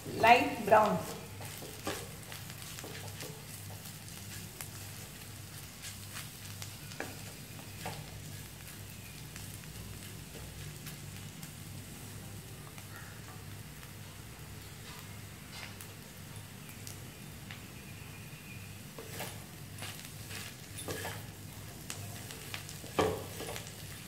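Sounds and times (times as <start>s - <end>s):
spatula scraping a pan: 0.0s - 8.7s, 19.0s - 21.4s, 22.2s - 24.0s
food sizzling in a wok: 0.0s - 24.0s.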